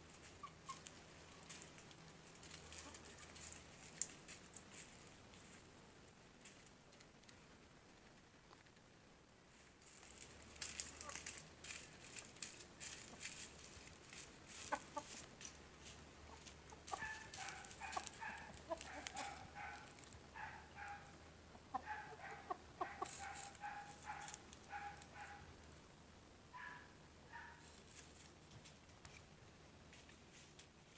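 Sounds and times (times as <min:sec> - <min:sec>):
cockerels clucking: 0:00.0 - 0:04.9, 0:10.6 - 0:25.5
cockerels pecking wood: 0:09.8 - 0:21.1, 0:21.7 - 0:25.8.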